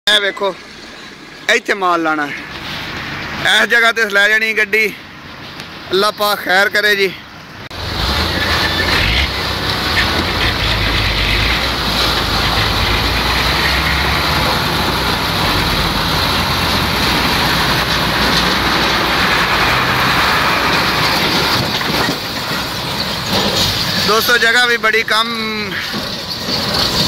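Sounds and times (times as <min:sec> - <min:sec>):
truck diesel engine running: 0:07.4 - 0:27.0.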